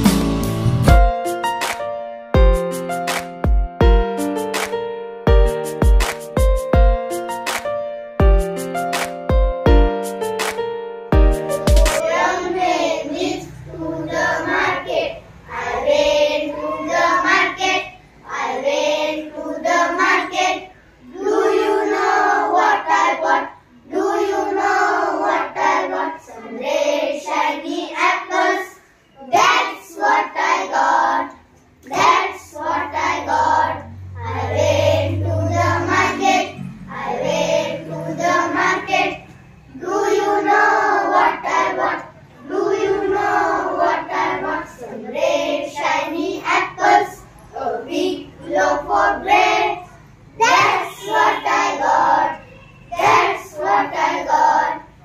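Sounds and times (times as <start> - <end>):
children singing in unison: 11.5 - 55.0.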